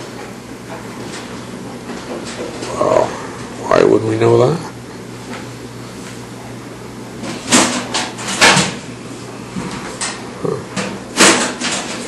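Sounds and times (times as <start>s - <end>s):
sharp knocks and clatters: 10.8s - 12.0s.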